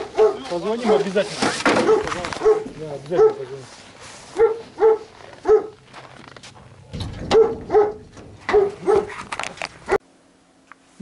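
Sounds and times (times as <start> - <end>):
dog barking: 0.0 - 1.2, 1.8 - 3.6, 4.3 - 5.8, 7.3 - 9.2.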